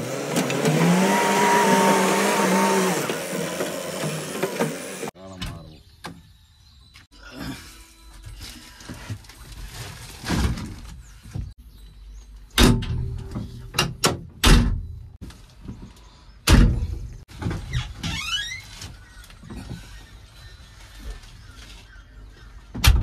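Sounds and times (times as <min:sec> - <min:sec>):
door slams and metal clunks: 0:12.6 - 0:15.0, 0:16.4 - 0:17.1.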